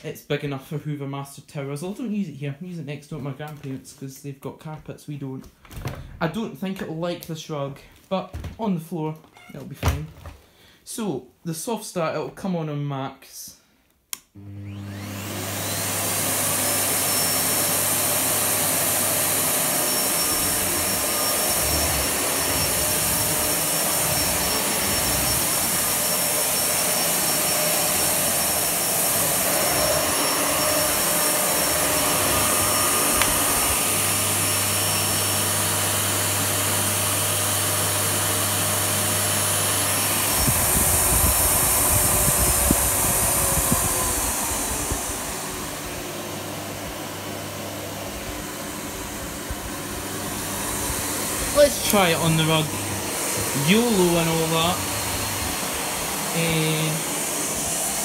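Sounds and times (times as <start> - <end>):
vacuum cleaner motor whine: 14.4 - 58.0.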